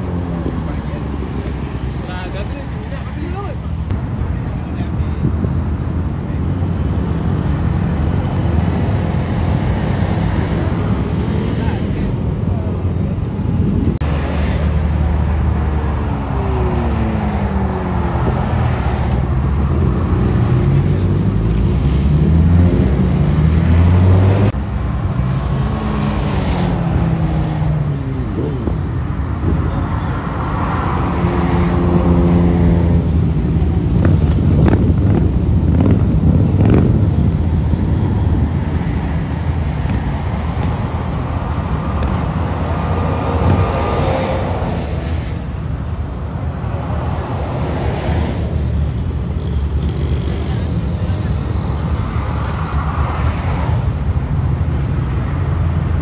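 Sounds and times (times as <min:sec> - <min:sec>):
motorcycles passing by: 0:06.1 - 0:56.0
motorcycle engine revving: 0:33.8 - 0:37.3.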